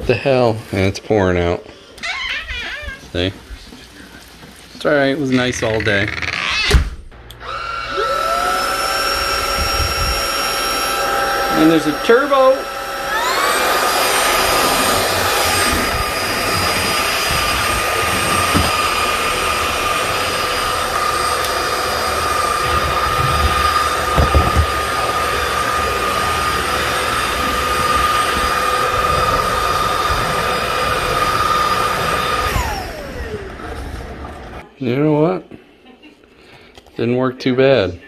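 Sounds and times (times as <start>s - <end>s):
vacuum motor whine: 7.2s - 34.6s.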